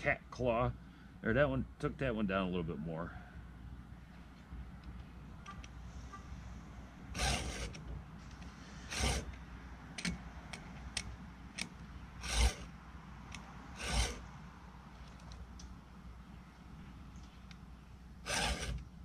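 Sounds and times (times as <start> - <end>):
file rasping on saw chain: 7.2 - 7.8, 8.8 - 9.3, 12.2 - 12.7, 13.8 - 14.2, 18.2 - 18.8.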